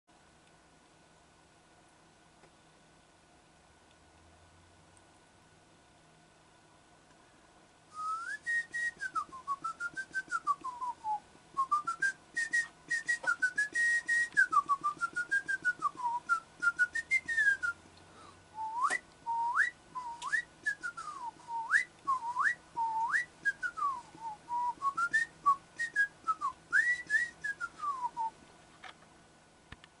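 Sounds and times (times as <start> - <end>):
person whistling a tune: 7.9 - 17.8, 18.6 - 28.3.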